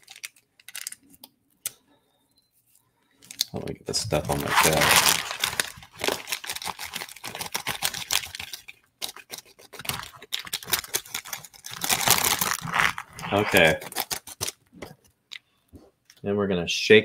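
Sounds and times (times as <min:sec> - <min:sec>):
plastic snack packaging crinkling: 0:00.0 - 0:01.3, 0:03.2 - 0:15.0.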